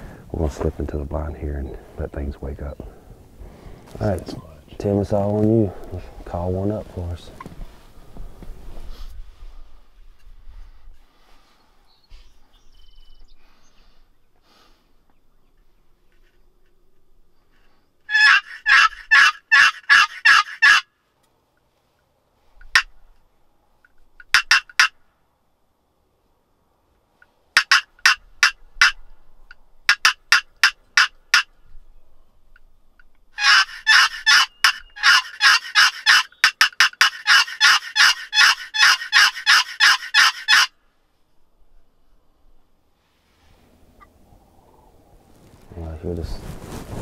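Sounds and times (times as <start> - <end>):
turkey call rasping yelps: 18.1 - 20.9, 24.2 - 25.0, 33.4 - 40.8.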